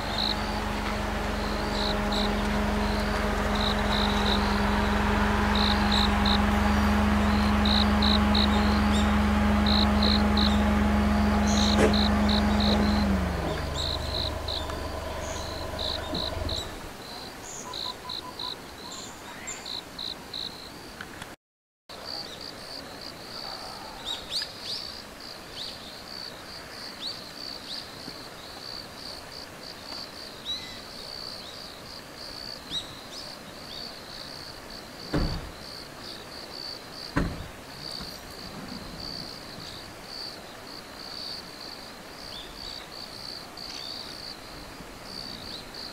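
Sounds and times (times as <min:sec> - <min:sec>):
loud low hum: 0:00.0 - 0:17.0
insects chirping: 0:00.0 - 0:21.0, 0:22.1 - 0:45.9
dull thumps: 0:00.7 - 0:16.8.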